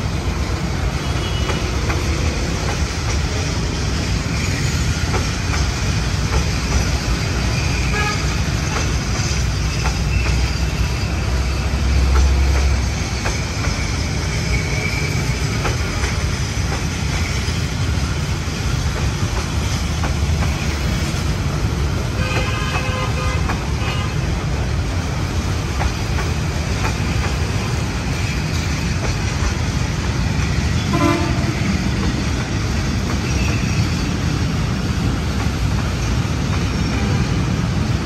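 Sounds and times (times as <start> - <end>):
train rumbling past: 0.0 - 38.0
wheels clicking over rails: 1.4 - 36.9.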